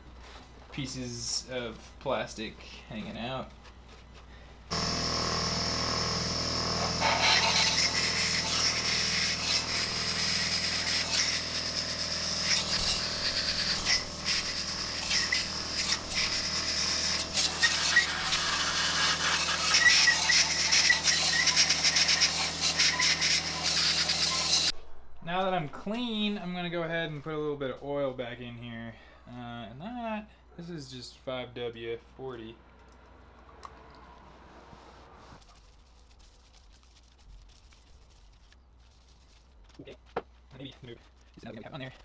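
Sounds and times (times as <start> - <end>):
air compressor humming: 4.1 - 24.7
blow gun hissing: 6.6 - 24.7.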